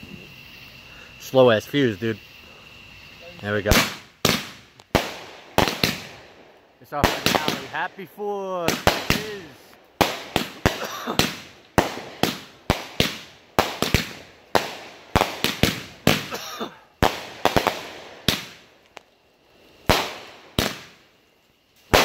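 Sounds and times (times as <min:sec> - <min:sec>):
firework bangs: 0:03.5 - 0:18.8, 0:19.8 - 0:21.1.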